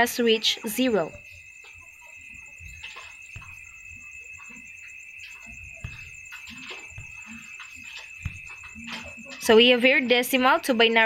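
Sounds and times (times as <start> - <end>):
high-pitched whine: 0.8 - 9.6.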